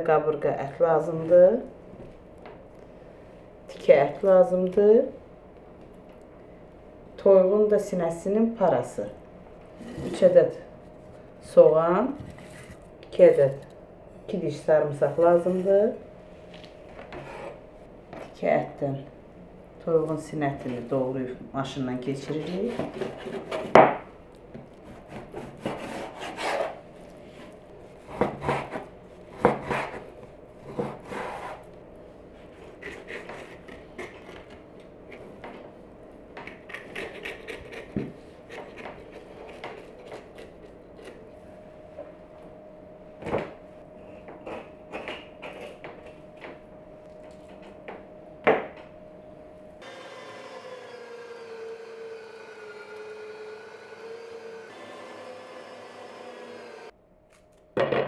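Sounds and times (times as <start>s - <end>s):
electric meat grinder humming: 49.8s - 56.9s.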